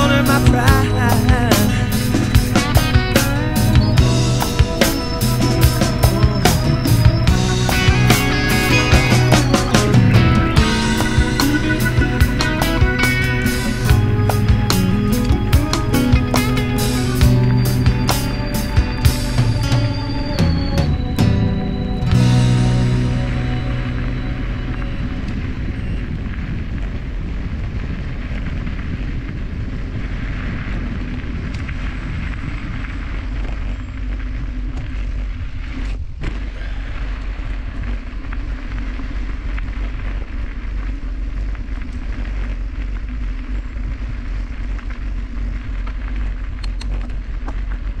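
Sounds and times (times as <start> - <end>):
wind buffeting microphone: 0.0 - 48.0
bike tyre noise on dirt: 22.0 - 48.0.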